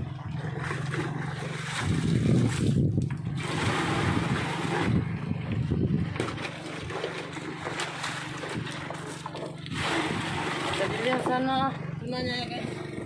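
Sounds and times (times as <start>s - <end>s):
boat engine hum: 0.0s - 13.0s
water splashing into a box: 0.3s - 5.1s, 6.0s - 11.5s.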